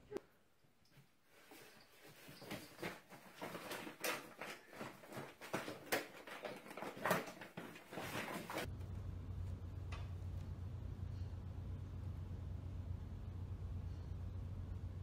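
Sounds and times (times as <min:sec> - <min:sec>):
bag sliding across tile floor: 0:01.4 - 0:08.7
dog food bag crinkling: 0:02.4 - 0:08.7.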